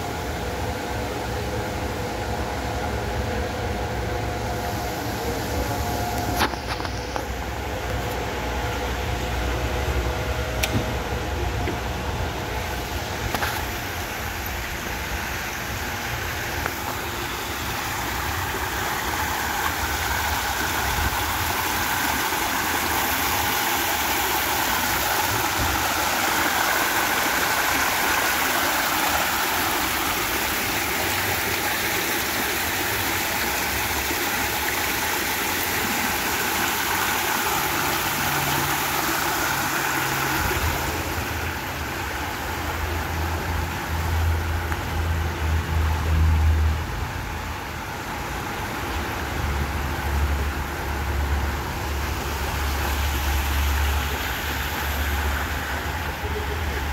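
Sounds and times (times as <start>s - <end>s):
waterfall splashing over stones: 12.3s - 56.9s.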